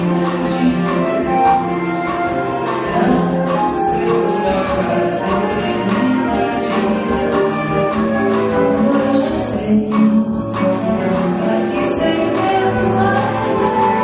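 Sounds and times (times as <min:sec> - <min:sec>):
small live band playing bossa nova: 0:00.0 - 0:14.0.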